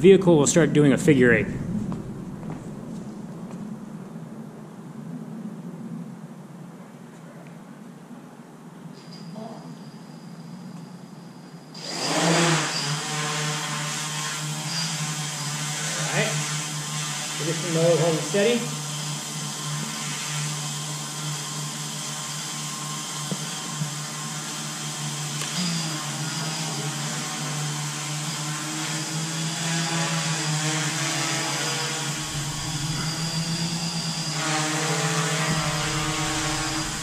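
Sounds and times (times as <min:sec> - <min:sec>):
quadcopter propellers humming: 0:01.1 - 0:04.0, 0:11.8 - 0:37.0.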